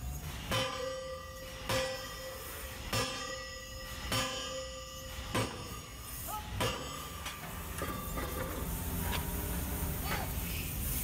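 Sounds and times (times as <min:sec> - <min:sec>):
hammer clanging on hot steel: 0:00.3 - 0:08.8.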